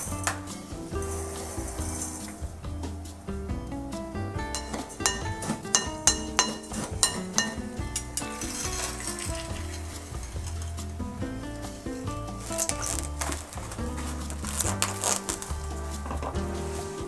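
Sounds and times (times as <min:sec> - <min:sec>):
background music: 0:00.0 - 0:17.0
metal spoon scraping glass bowl: 0:04.6 - 0:07.6, 0:08.2 - 0:10.8.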